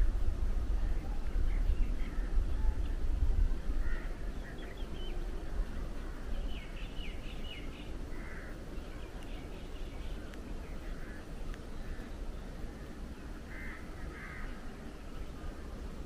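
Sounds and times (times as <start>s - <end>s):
bird chirping: 3.9s - 12.5s.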